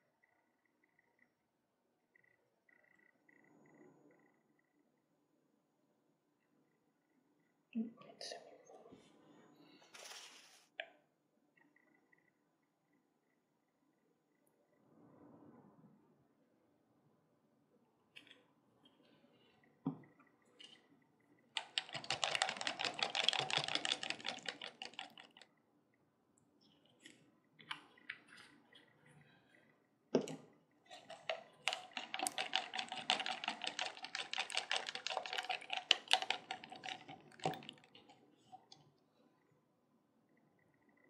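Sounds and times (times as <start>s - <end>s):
stir stick scraping plastic cup: 21.6s - 25.4s, 30.2s - 38.8s.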